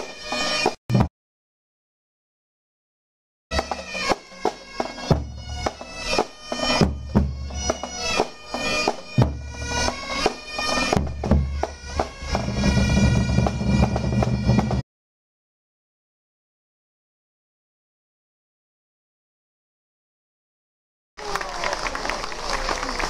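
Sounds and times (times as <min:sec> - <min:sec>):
bagpipes with drone: 0:00.0 - 0:00.8, 0:03.5 - 0:14.8.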